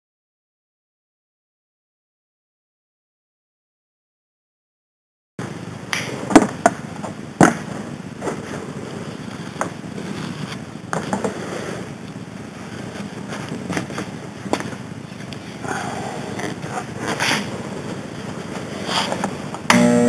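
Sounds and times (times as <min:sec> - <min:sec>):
vinyl rustling: 0:06.0 - 0:15.6.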